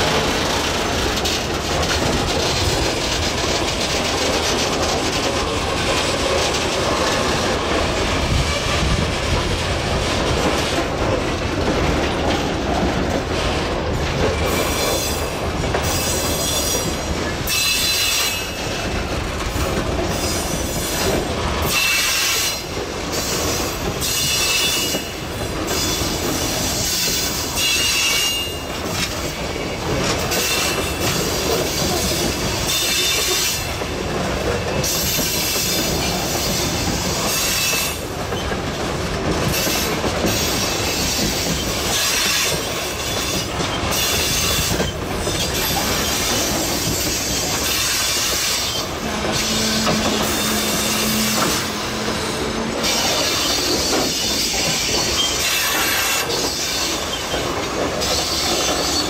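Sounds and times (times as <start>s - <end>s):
wagons clanking and clattering: 0.0s - 21.8s, 28.4s - 59.0s
steel wheels rumbling on rail: 0.0s - 59.0s
high-pitched wheel squeal: 43.3s - 57.1s.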